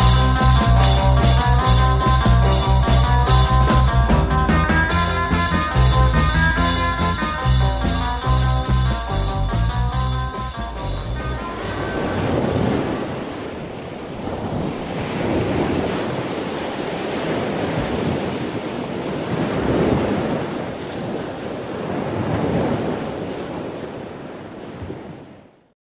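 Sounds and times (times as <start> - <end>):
waves washing: 5.0 - 25.6
wind on microphone: 10.3 - 25.4.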